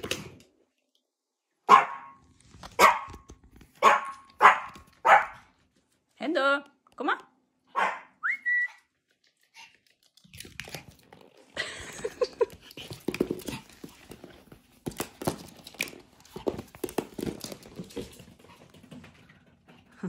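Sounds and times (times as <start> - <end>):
dog claws clicking on wood floor: 9.2 - 11.4, 12.0 - 19.6.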